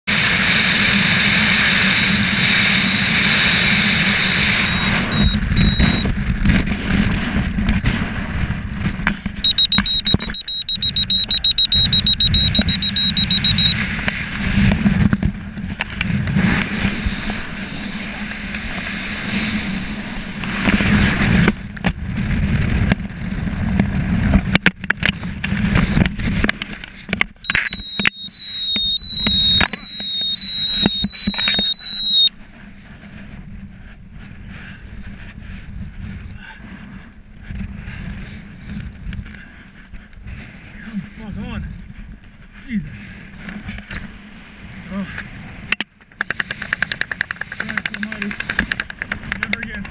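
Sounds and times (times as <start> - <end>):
wind rushing over microphone: 0.1 - 32.1, 32.7 - 45.8
high electronic beeps: 4.5 - 6.1, 9.4 - 13.8, 27.4 - 32.3.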